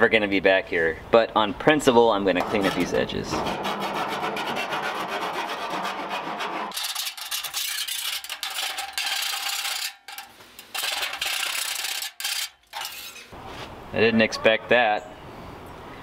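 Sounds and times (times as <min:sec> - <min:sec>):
hand file scraping metal: 0:02.4 - 0:13.4.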